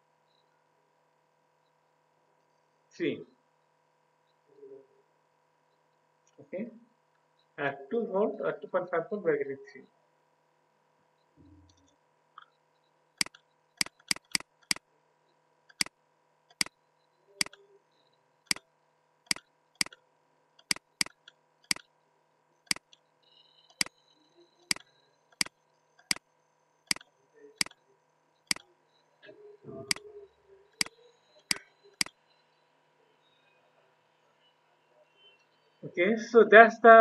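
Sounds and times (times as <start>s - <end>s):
mouse button clicking: 13.2s - 14.8s, 17.4s - 17.6s.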